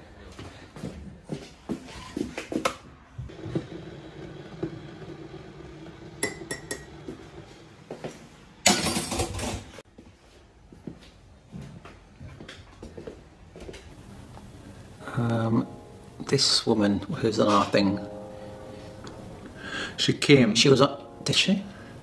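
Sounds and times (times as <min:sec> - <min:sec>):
mug and spoon clinking: 0:06.2 - 0:06.9
steady low hum: 0:14.0 - 0:16.2.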